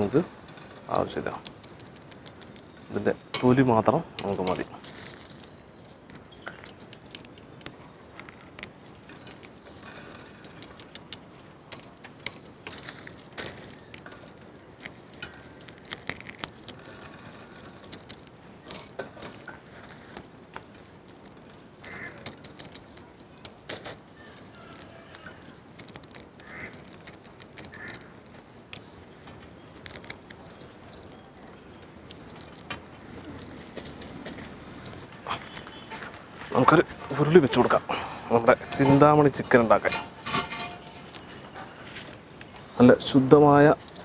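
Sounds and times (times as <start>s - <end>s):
dried chillies snapping: 0.0s - 44.0s
bird calls: 1.7s - 10.9s, 13.4s - 42.8s.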